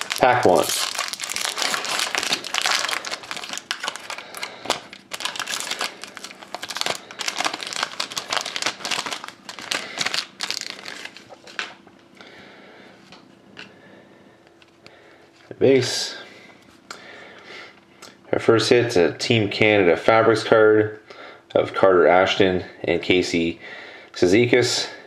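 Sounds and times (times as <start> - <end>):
foil wrapper crinkling: 0.0 - 11.7
cards rustling: 0.0 - 11.8.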